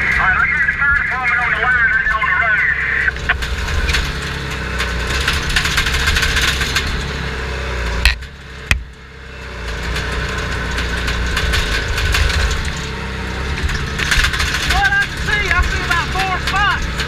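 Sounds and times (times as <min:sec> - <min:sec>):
dozer diesel engine running: 0:00.0 - 0:17.0
tracks clanking and rattling: 0:00.0 - 0:17.0
sharp knocks: 0:08.0 - 0:09.0.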